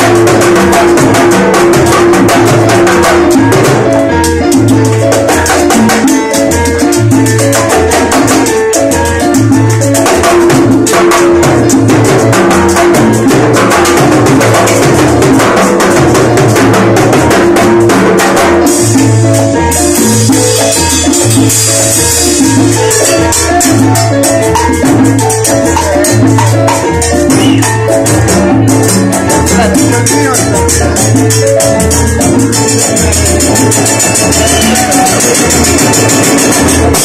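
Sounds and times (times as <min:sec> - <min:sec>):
salsa band playing live: 0:00.0 - 0:37.0
timbales and congas: 0:00.0 - 0:37.0
high hissing percussion: 0:25.3 - 0:37.0.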